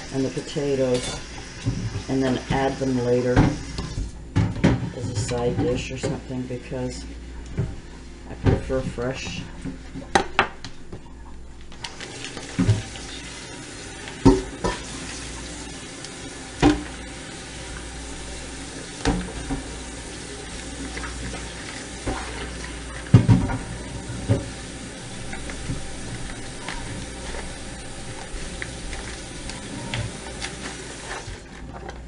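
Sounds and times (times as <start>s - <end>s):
kitchen tap running: 0.0s - 7.6s, 11.7s - 32.0s.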